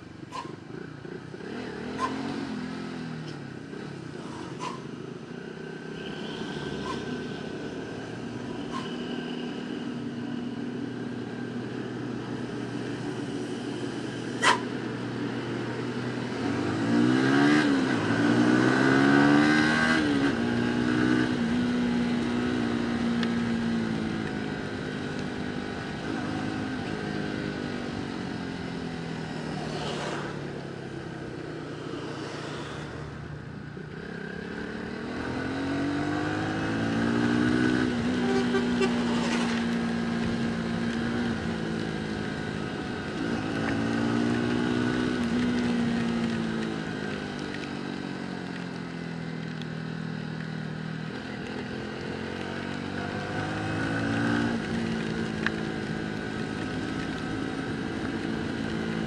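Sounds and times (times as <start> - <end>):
motorcycle engine running: 20.4 - 59.0.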